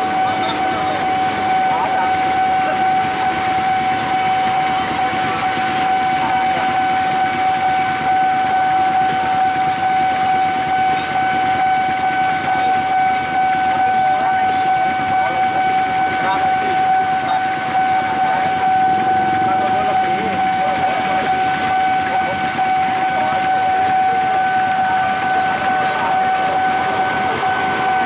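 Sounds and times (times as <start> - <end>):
motorbikes idling: 0.0 - 7.2, 13.4 - 28.0
level-crossing alarm tone: 0.0 - 28.0.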